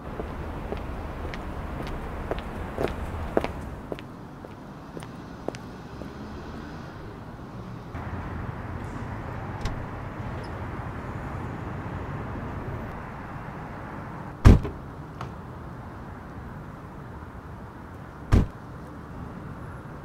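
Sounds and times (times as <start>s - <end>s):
street ambience hum: 0.0s - 20.0s
car door thud: 14.4s - 14.8s, 18.3s - 18.6s.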